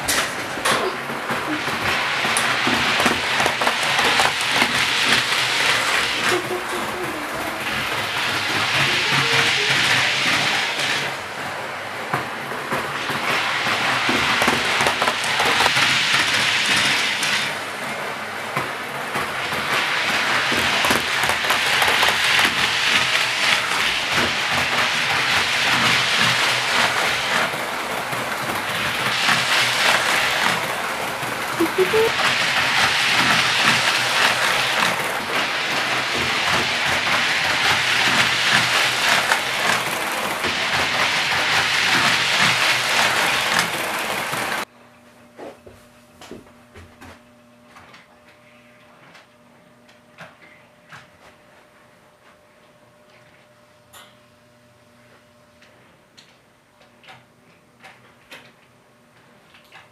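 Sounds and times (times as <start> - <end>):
wheels clattering over track: 0.0 - 44.7
model train motor whir: 0.1 - 11.2, 12.8 - 17.6, 19.1 - 44.7.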